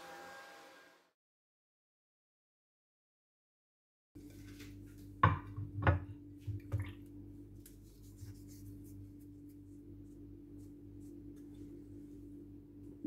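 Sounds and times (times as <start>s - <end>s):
steady low hum: 4.2s - 13.0s
household objects knocking and clattering: 5.2s - 6.9s.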